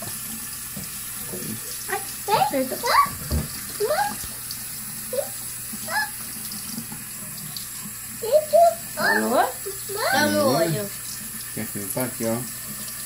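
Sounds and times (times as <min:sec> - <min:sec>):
tap running into sink: 0:00.0 - 0:05.4.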